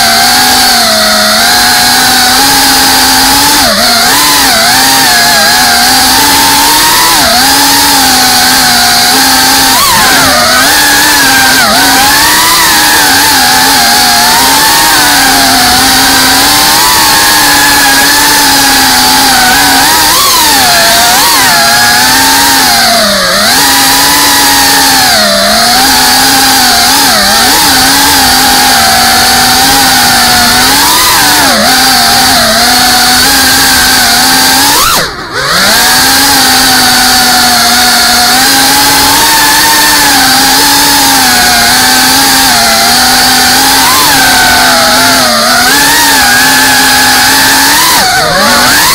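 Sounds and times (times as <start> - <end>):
drone motors buzzing whine: 0.0 - 48.9.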